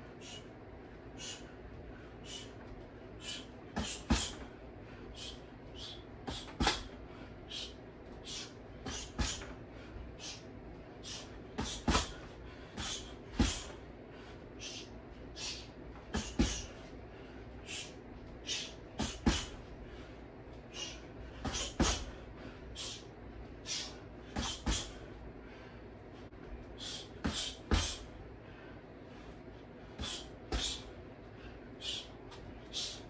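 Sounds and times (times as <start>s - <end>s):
punches thudding on dummy: 6.3s - 6.9s, 11.6s - 12.2s, 19.0s - 19.6s, 21.4s - 22.1s.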